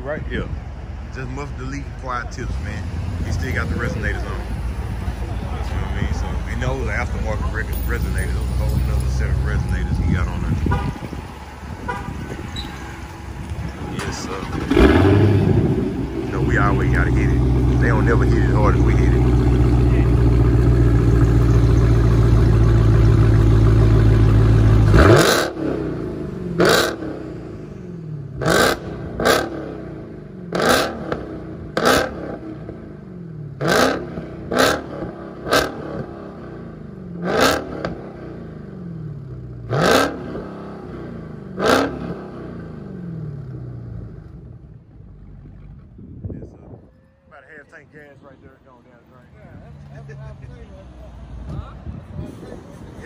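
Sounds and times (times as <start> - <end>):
car engine idling: 0.5 - 29.3
car engine revving: 1.3 - 45.8.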